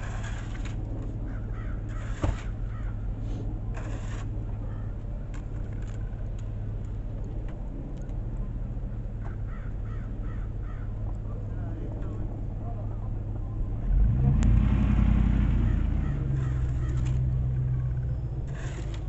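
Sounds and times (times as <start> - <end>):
snow shovel scraping sidewalk: 0.0 - 0.9, 1.9 - 2.6, 3.2 - 4.3, 15.6 - 19.0.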